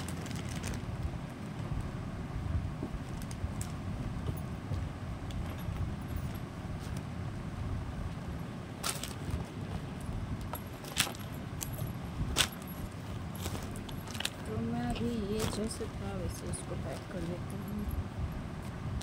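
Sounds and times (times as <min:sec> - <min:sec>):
fabric rustling: 0:08.8 - 0:17.9.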